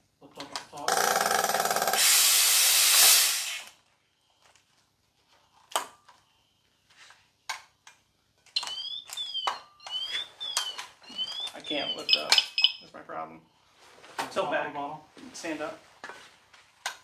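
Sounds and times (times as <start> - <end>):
air venting with loud hiss: 1.4 - 3.8
electronic alarm chirping: 8.6 - 12.9.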